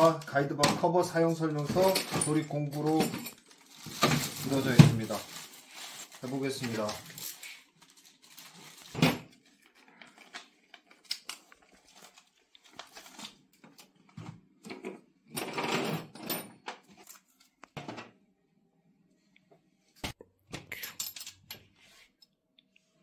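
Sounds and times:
plastic packaging rustling: 1.6s - 13.5s.

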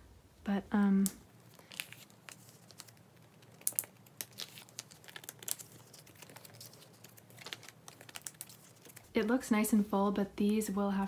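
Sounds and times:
plastic sleeves crinkling: 0.9s - 9.6s
cards clicking and scraping: 1.5s - 9.1s.

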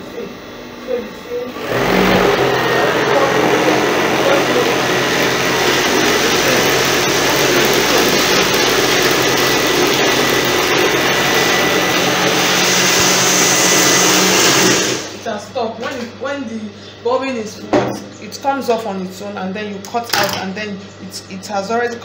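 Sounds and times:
sewing machine motor whirring: 1.5s - 15.2s.

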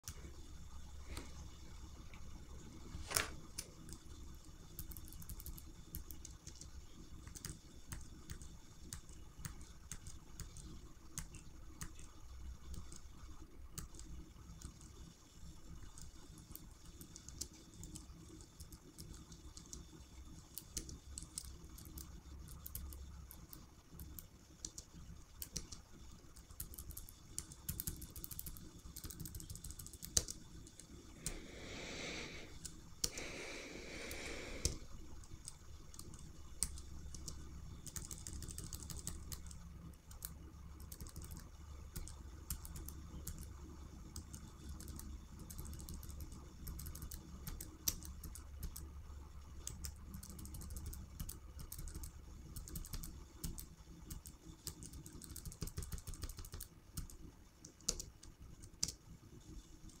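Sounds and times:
computer keyboard keys tapping: 3.0s - 31.4s, 34.6s - 48.9s, 49.5s - 60.0s
rushes of breathy noise: 31.1s - 34.9s.

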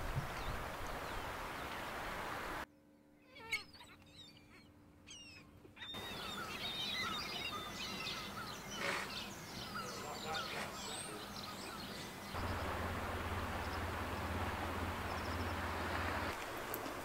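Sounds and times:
falling bird calls: 3.2s - 17.0s
birds chirping: 3.3s - 17.0s
faint steady hum: 11.2s - 17.0s
steady rushing noise: 12.2s - 17.0s.

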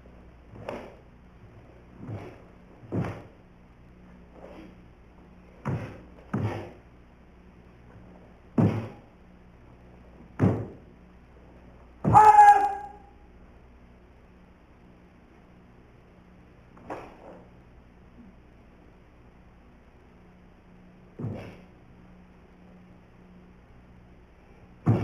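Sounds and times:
feet stamping on floor: 2.0s - 3.4s, 5.6s - 6.8s, 8.5s - 9.1s, 10.3s - 10.8s
person shouting: 12.1s - 13.1s.

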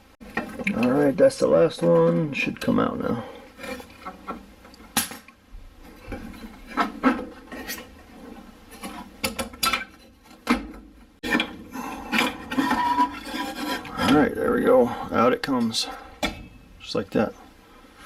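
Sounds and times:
metal clicks knocks and scraping: 3.6s - 14.3s.

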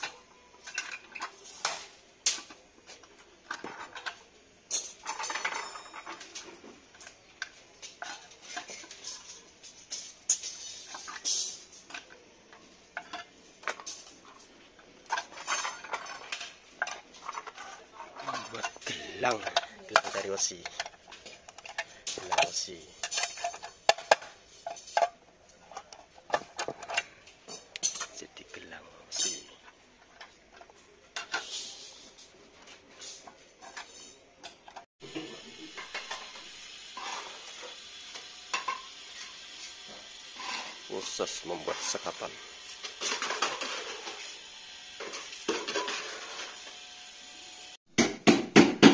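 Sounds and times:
steel rebar clinking and scraping: 0.0s - 34.8s
steady hiss: 6.4s - 17.4s.

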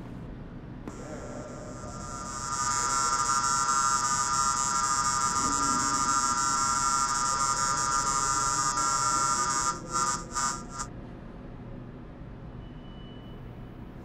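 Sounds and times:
electronic buzzing drone: 0.9s - 10.9s.

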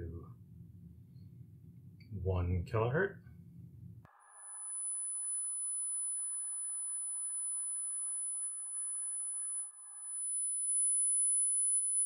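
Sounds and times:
sine-wave test tone: 4.1s - 12.0s.

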